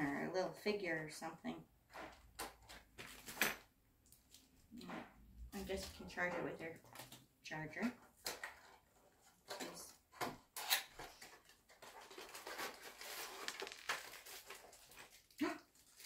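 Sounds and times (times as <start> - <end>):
cardboard rustling: 11.0 - 16.0.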